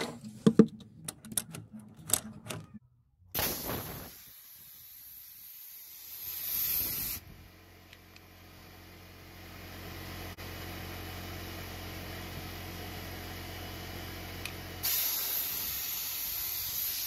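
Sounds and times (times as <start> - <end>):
compressed air hissing: 3.4 - 7.3, 14.8 - 17.0.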